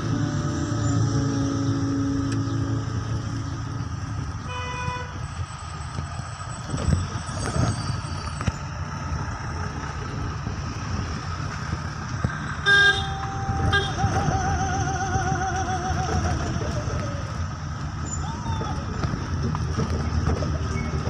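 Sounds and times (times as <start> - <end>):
vehicle engine and road noise: 0.0 - 21.0
car horn toot: 4.4 - 5.2, 12.6 - 14.3.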